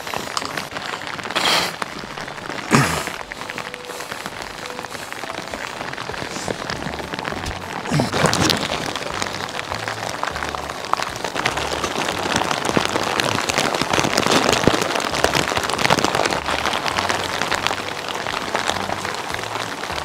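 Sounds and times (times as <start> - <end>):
heavy rain on grass and metal: 0.0 - 20.0.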